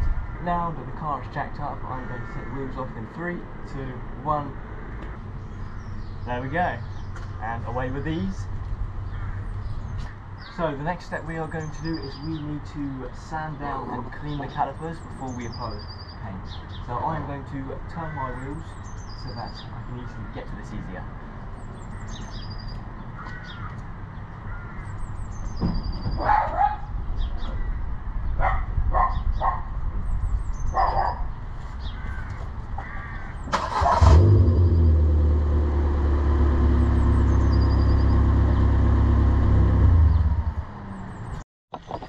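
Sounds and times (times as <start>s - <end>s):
car engine starting and idling: 33.5s - 41.2s.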